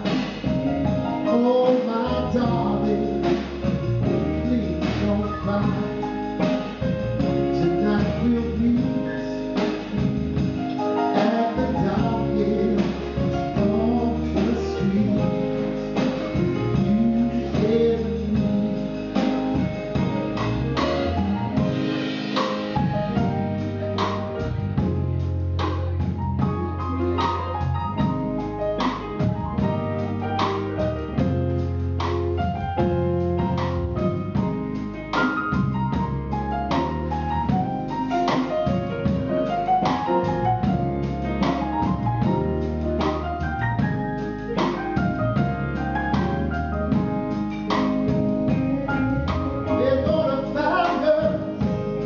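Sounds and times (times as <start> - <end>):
drum kit: 0.0 - 52.0
electric guitar: 0.0 - 52.0
man singing soul ballad: 0.4 - 21.8, 47.7 - 52.0.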